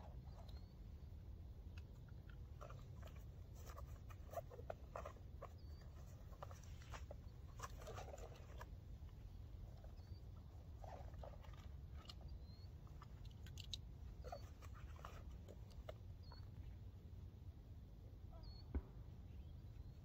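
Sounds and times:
faint rustles and ticks: 0:00.0 - 0:17.0
faint high chirps: 0:18.2 - 0:20.0.

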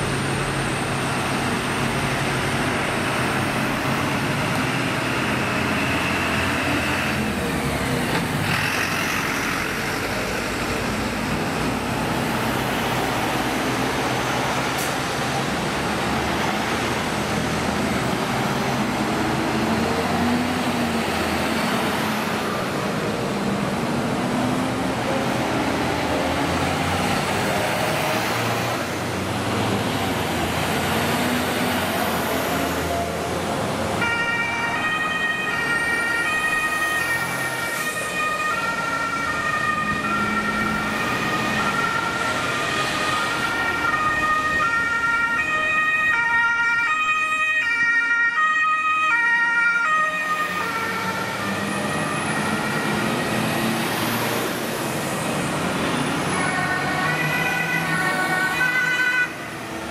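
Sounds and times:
vehicles driving past: 0:00.0 - 0:59.9
two-tone siren: 0:34.0 - 0:53.8, 0:56.2 - 0:59.6.

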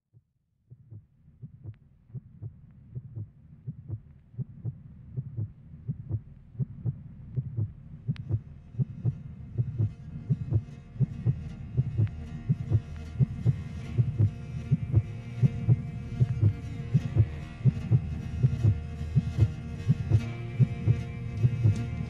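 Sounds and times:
heartbeat-like thudding pulse: 0:00.7 - 0:21.9
high sustained tones: 0:08.5 - 0:22.0.

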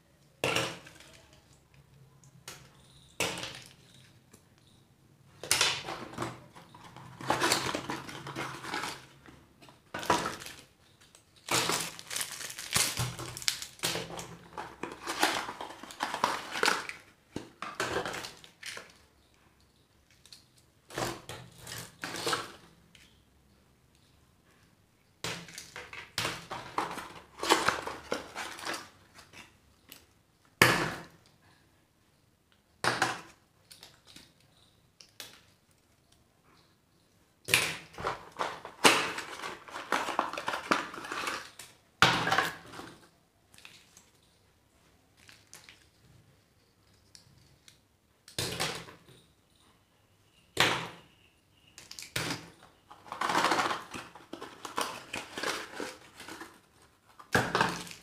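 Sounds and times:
plastic wrappers crackling: 0:05.5 - 0:19.1, 0:38.0 - 0:41.8, 0:52.9 - 0:58.0.

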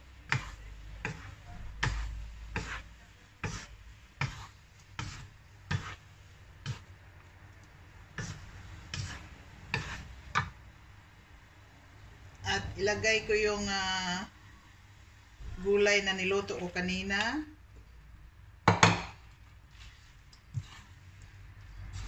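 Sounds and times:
wooden spatulas knocking on wok: 0:18.6 - 0:19.2.

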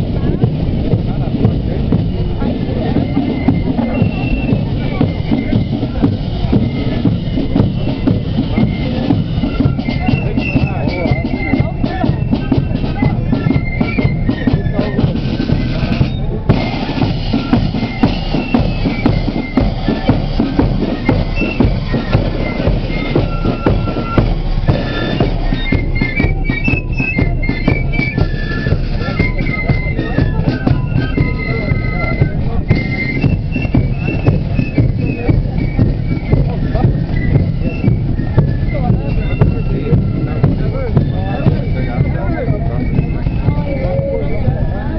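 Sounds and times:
bass drum beats: 0:00.0 - 0:44.9
flutes playing melody: 0:00.0 - 0:44.9
side drum beats: 0:00.0 - 0:44.9.

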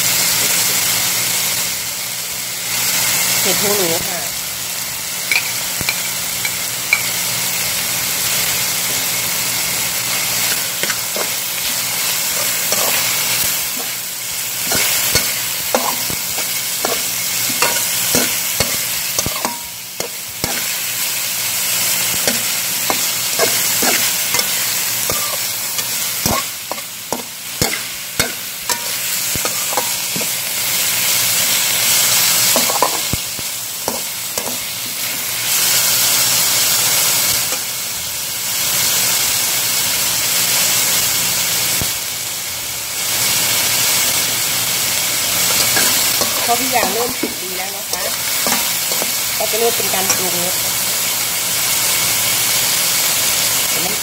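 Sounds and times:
food sizzling in a wok: 0:00.0 - 0:54.0
metal spatula scraping a pan: 0:10.1 - 0:14.0, 0:14.6 - 0:20.9, 0:21.9 - 0:30.4, 0:45.4 - 0:50.8.

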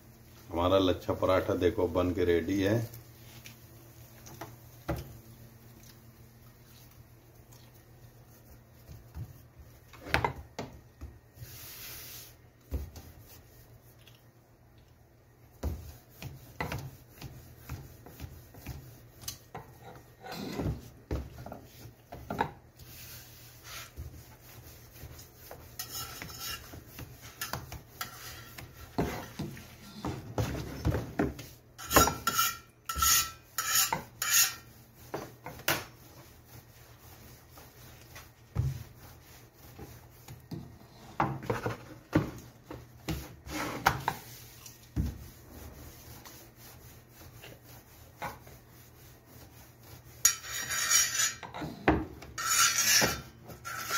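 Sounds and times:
rolling pin rolling dough: 0:00.2 - 0:14.1, 0:15.4 - 0:53.9
hands patting dough: 0:01.5 - 0:19.8, 0:20.7 - 0:31.6.

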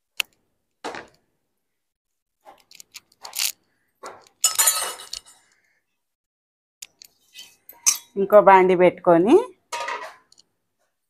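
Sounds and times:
metal pots clattering: 0:04.4 - 0:05.5, 0:07.3 - 0:08.2, 0:09.7 - 0:10.4
steel vessels and ladle clinking: 0:04.4 - 0:05.5, 0:07.1 - 0:08.3.

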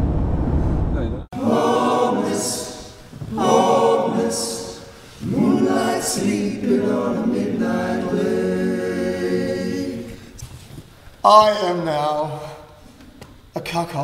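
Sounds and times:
men's choir singing: 0:01.3 - 0:10.4
hissed consonants: 0:01.4 - 0:10.5.

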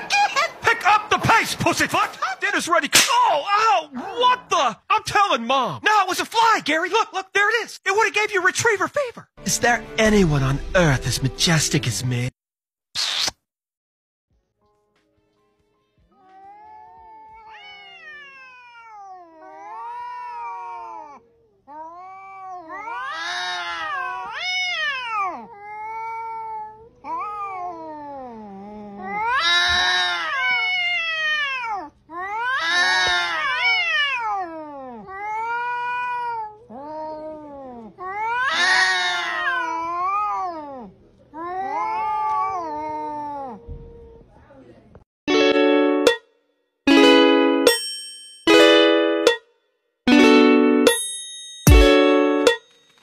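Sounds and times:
cats yowling: 0:16.2 - 0:44.2.

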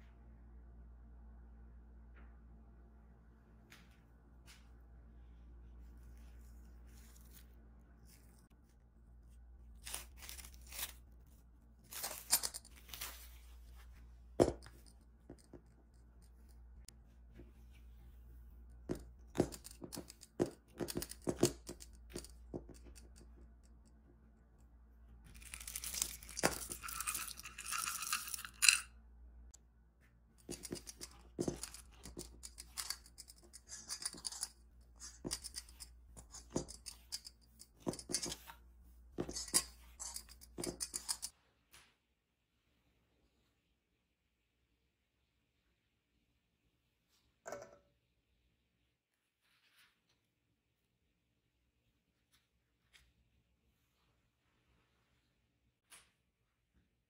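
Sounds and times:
chocolate chips poured into bowl: 0:25.3 - 0:28.8.

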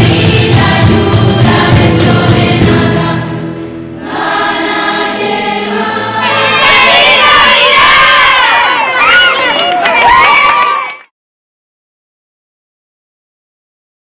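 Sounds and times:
rhythmic accompaniment beat: 0:00.0 - 0:03.2
choir singing: 0:00.0 - 0:08.8.

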